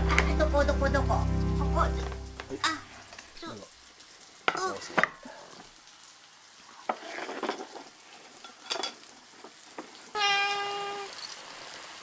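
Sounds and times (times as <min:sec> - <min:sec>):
hot pan sizzling: 0:00.0 - 0:12.0
crockery clinking: 0:08.4 - 0:09.0
cat meowing: 0:10.1 - 0:11.1.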